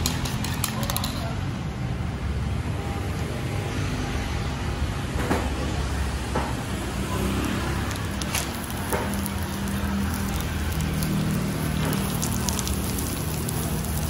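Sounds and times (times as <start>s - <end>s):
batter sizzling in pans: 7.6s - 14.0s.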